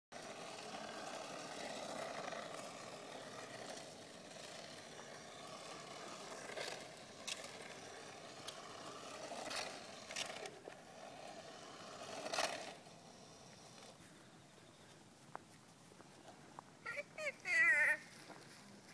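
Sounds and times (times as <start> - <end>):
toy car electric motor whirring: 0.2 - 14.0.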